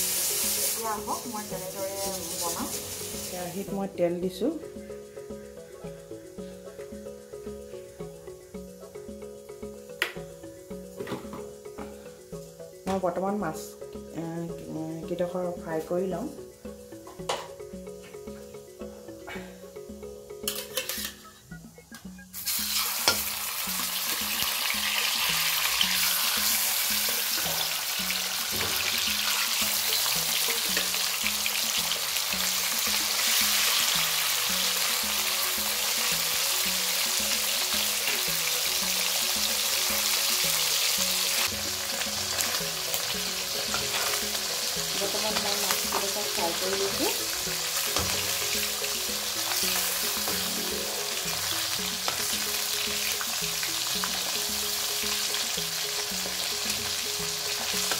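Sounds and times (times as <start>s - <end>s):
fish sizzling in hot oil: 0.0s - 5.7s, 22.1s - 57.9s.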